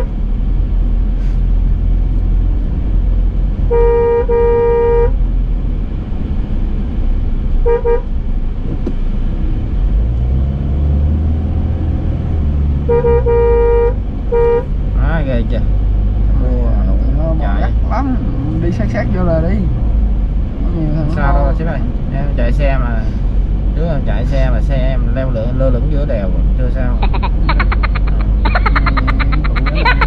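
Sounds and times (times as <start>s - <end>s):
car engine and road noise: 0.0s - 30.0s
car horn honking: 3.7s - 5.2s, 7.6s - 8.1s, 12.8s - 14.7s.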